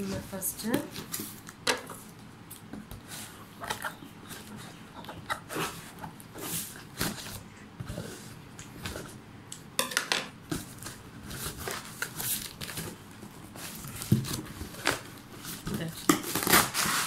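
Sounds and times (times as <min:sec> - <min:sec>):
cardboard scraping and crinkling: 0:10.6 - 0:17.0
scissors cutting packing tape: 0:16.1 - 0:17.0.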